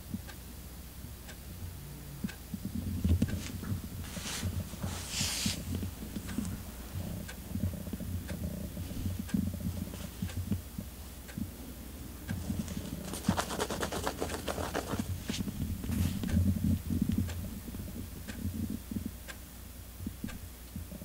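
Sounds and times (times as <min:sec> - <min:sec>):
clock ticking: 0:02.2 - 0:11.6, 0:12.2 - 0:15.4
cat scratching rapidly: 0:12.4 - 0:16.3.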